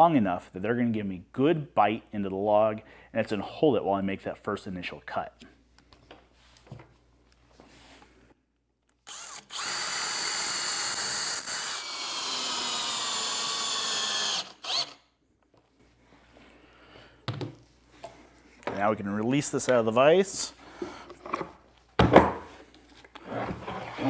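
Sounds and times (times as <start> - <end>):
cordless drill driving screw: 9.0 - 15.0.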